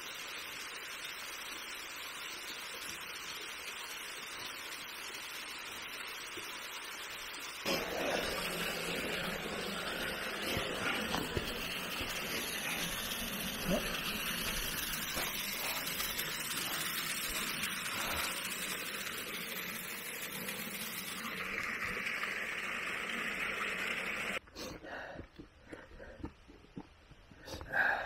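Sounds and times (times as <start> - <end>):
waterfall rushing over rock: 7.6 - 24.4.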